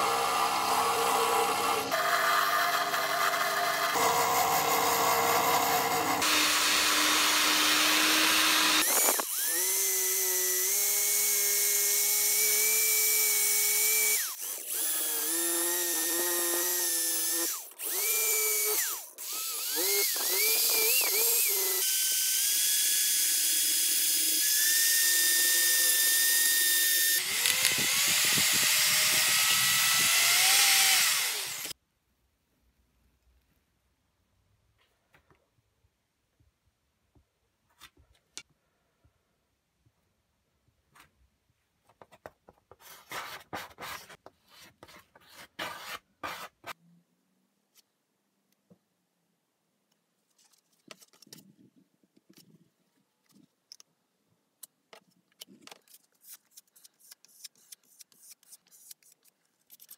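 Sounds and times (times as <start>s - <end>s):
drill motor whine: 0.0s - 31.7s.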